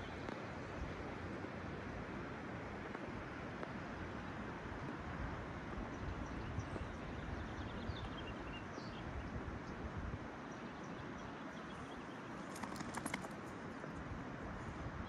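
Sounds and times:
wind rumbling on microphone: 0:05.1 - 0:10.4.

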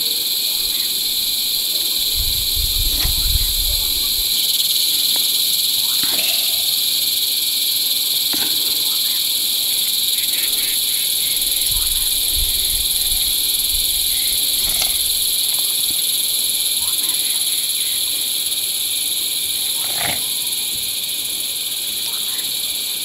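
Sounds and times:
insects chirring: 0:00.0 - 0:23.0.

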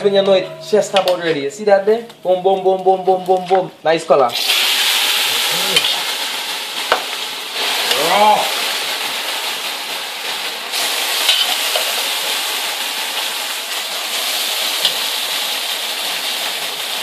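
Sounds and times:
meat sizzling in a pot: 0:04.3 - 0:17.0.

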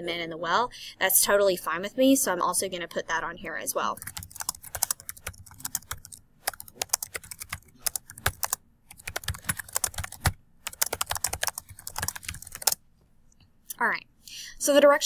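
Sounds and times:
computer keyboard typing: 0:04.0 - 0:12.8.

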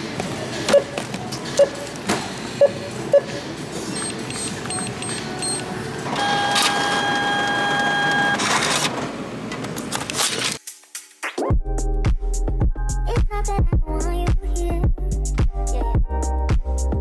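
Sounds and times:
busy background noise: 0:00.0 - 0:10.4
small machine whining: 0:04.0 - 0:08.5.

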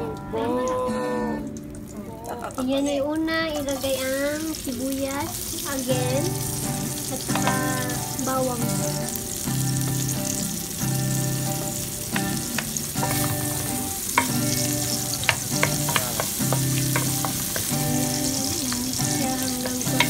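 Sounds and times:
garlic and onion sizzling in oil: 0:00.0 - 0:20.0
background music low notes: 0:05.5 - 0:20.0
wooden spoon scraping a wok: 0:12.1 - 0:18.3.

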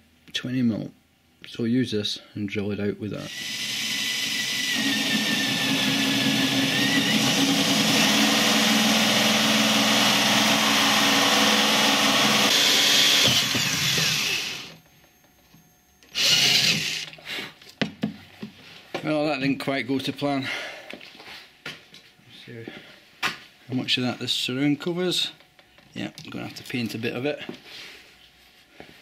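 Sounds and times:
cordless drill hole saw cutting wood: 0:03.3 - 0:14.8, 0:16.1 - 0:17.1.

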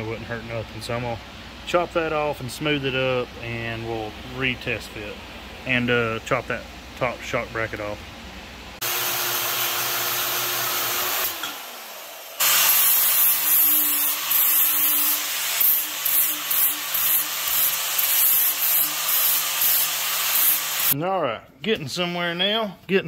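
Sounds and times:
angle grinder grinding steel: 0:08.8 - 0:21.0
power tool motor winding down: 0:08.8 - 0:21.0.

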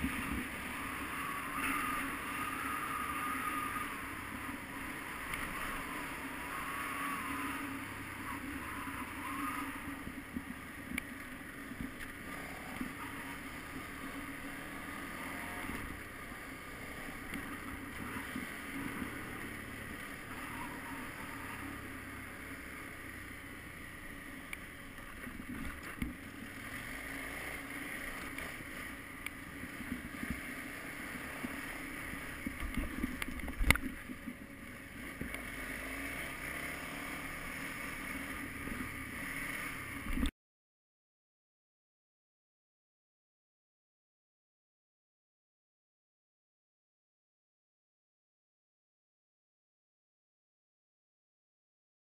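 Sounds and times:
motorcycle engine running: 0:00.0 - 0:40.3.

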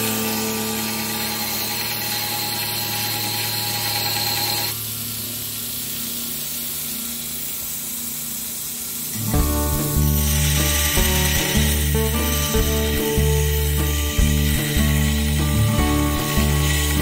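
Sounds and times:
metal grinding on belt grinder: 0:00.0 - 0:04.8, 0:09.2 - 0:17.0
belt grinder motor running: 0:00.0 - 0:17.0.

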